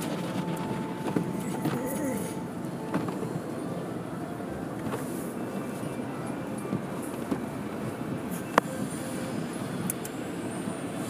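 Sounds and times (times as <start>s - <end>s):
car wash machinery running: 0.0s - 11.0s.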